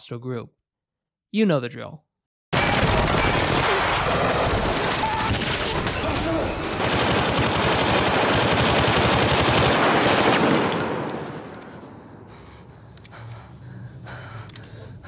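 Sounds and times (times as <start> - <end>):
automatic rifles firing bursts: 2.6 - 11.1.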